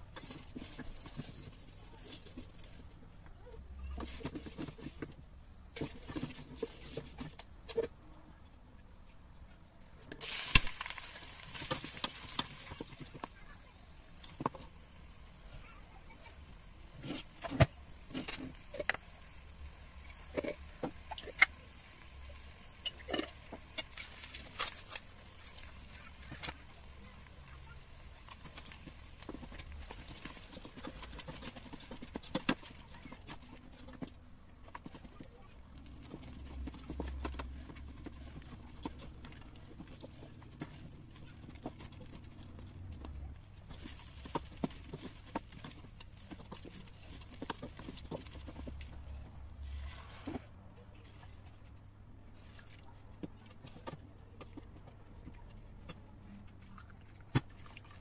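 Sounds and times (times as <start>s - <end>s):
wooden spatula scraping a pot: 0.1s - 2.8s, 3.6s - 7.9s, 10.2s - 51.7s.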